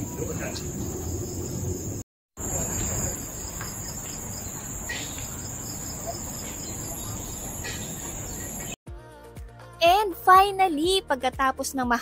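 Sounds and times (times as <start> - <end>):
insects droning: 0.0 - 8.8
faint bird chirps: 2.5 - 8.8.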